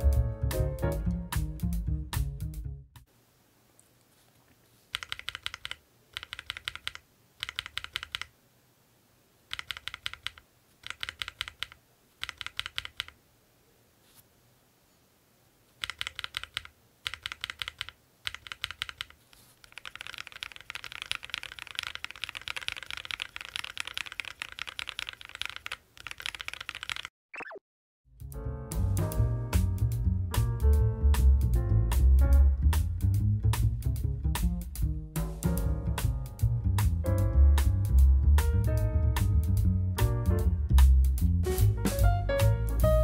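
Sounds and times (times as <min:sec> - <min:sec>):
mechanical keyboard typing: 0:04.9 - 0:08.3, 0:09.5 - 0:13.2, 0:15.8 - 0:27.1.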